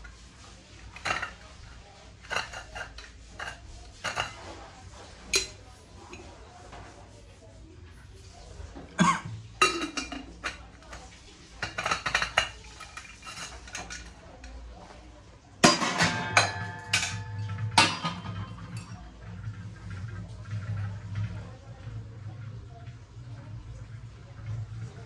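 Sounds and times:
brass utensils clinking: 0:11.7 - 0:14.2, 0:15.6 - 0:18.9.

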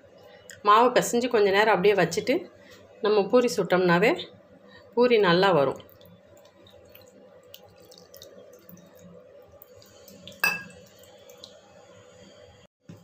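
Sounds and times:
wet dough squishing: 0:05.7 - 0:11.6
steel bowl clinking: 0:10.1 - 0:11.1.

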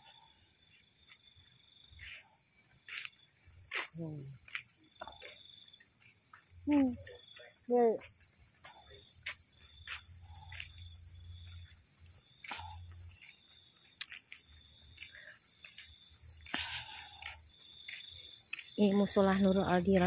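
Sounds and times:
night insects chorus: 0:00.0 - 0:20.0.

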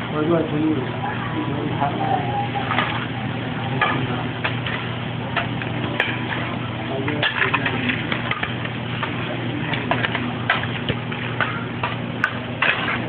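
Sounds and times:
steady low hum: 0:00.0 - 0:13.0
metal spatula scraping griddle: 0:03.8 - 0:13.0.

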